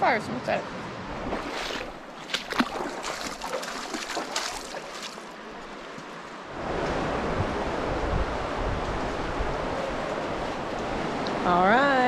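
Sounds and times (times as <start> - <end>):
river water rushing: 0.6 - 12.0
footsteps splashing through water: 1.2 - 6.1.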